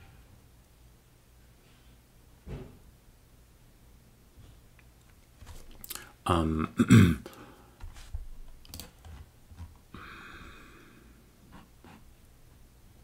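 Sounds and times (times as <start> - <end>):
man clearing his throat: 6.3 - 7.4.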